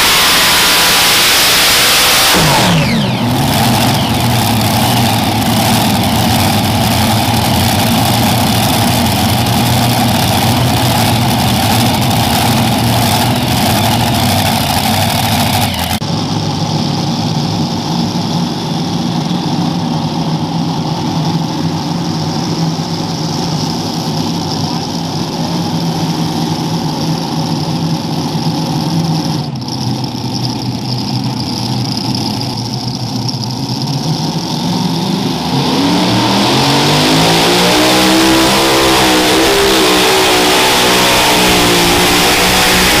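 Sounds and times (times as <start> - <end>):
pulling tractor engines idling: 2.4 - 35.6.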